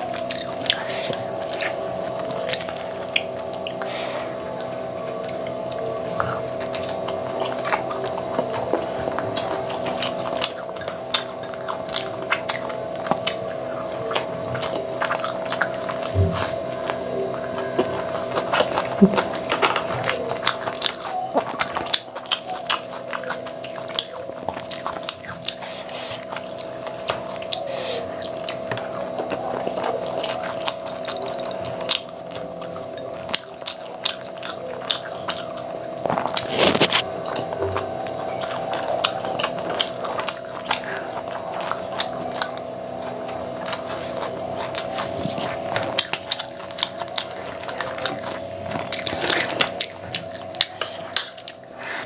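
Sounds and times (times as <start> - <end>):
chewing and crunching food: 0.0 - 52.0
steady hum: 0.0 - 52.0.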